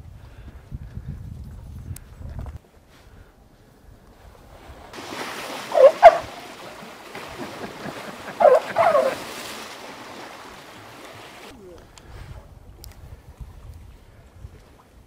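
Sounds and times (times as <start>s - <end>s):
water splashing: 4.4s - 11.6s
elephant calls: 5.4s - 9.6s.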